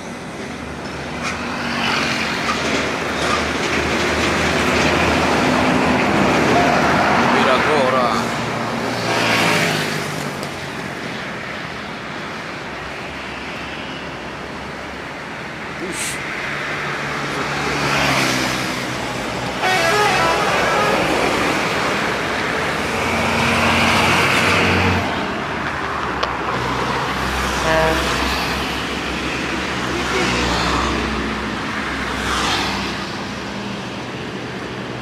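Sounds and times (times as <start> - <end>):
bus engine and road noise: 0.0 - 35.0
highway traffic: 0.0 - 35.0
bus air horn blast: 19.6 - 22.4, 27.6 - 28.3.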